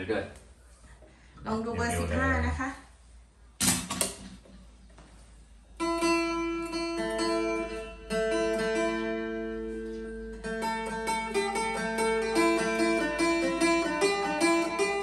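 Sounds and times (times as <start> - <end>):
plucked lute melody: 5.8 - 15.0.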